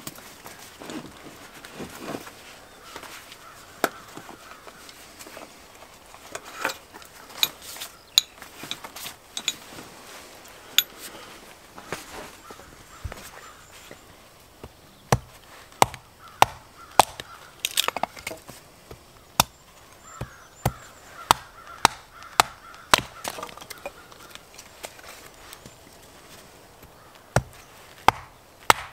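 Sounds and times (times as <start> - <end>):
hatchet chopping wood: 14.6 - 19.6, 20.2 - 24.0, 27.3 - 28.9.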